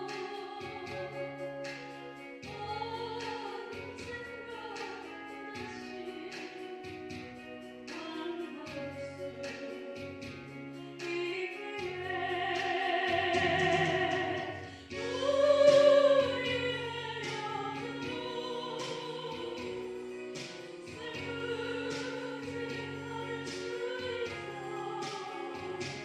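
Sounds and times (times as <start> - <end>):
woman singing with vibrato: 0.0 - 7.3, 7.9 - 10.1, 10.8 - 26.0
instrumental accompaniment: 0.0 - 26.0.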